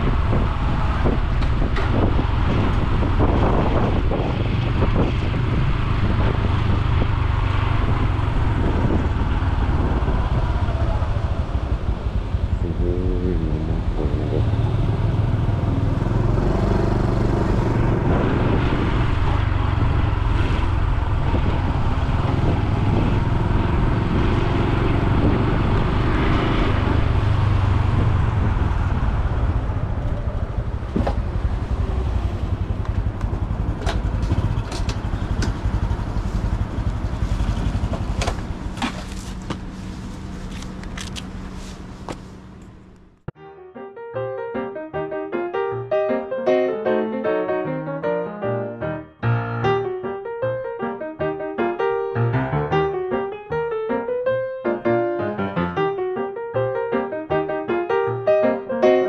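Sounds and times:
road and wind noise: 0.0s - 43.4s
motorcycle engine running: 26.7s - 43.3s.

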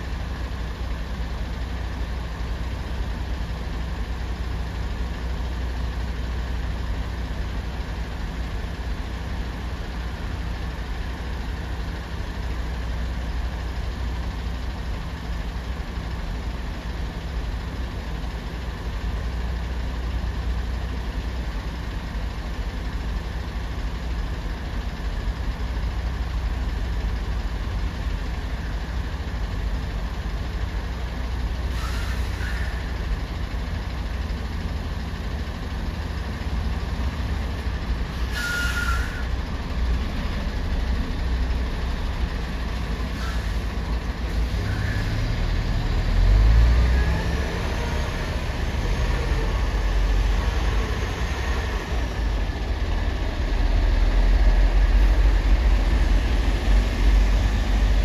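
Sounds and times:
diesel engines rumbling: 0.0s - 58.0s
brake squeal with hiss: 31.7s - 33.0s, 38.2s - 39.3s, 43.1s - 43.7s, 44.5s - 45.2s.

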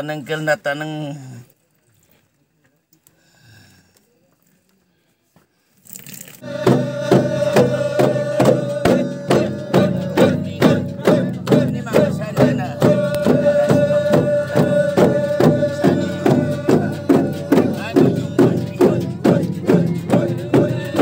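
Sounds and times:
drums beating evenly: 6.4s - 21.0s.

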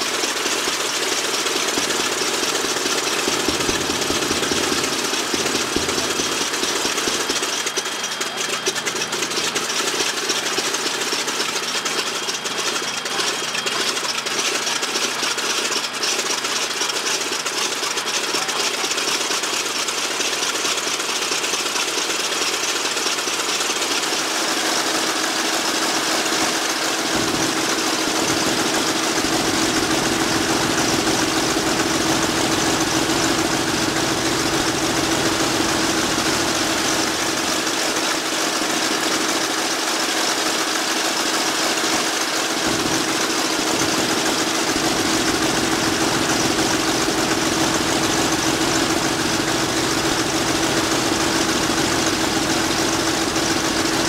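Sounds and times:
radial engine running: 0.0s - 54.0s.

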